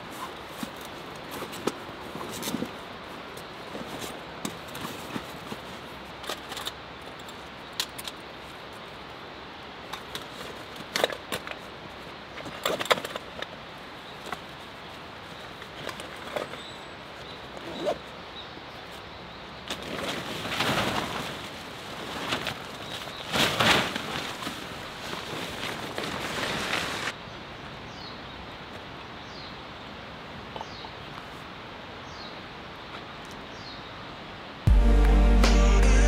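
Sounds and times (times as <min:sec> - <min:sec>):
fabric and straps rustling: 0:00.0 - 0:07.5, 0:10.0 - 0:18.1, 0:19.6 - 0:27.2.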